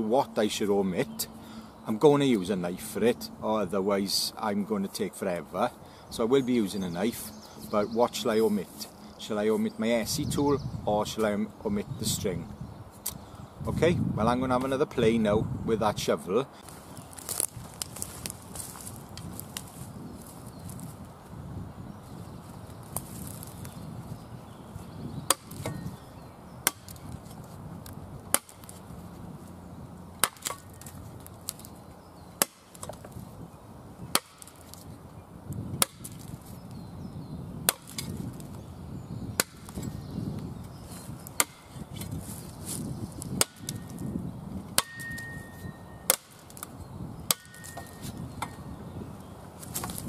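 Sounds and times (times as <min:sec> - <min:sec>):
shovel blade chopping sapling: 0:25.2 - 0:26.0, 0:26.6 - 0:28.8, 0:30.2 - 0:31.7, 0:32.4 - 0:33.1, 0:34.0 - 0:34.9, 0:35.8 - 0:36.4, 0:37.7 - 0:38.5, 0:39.4 - 0:39.9, 0:41.0 - 0:44.1, 0:44.7 - 0:46.7, 0:47.3 - 0:48.6.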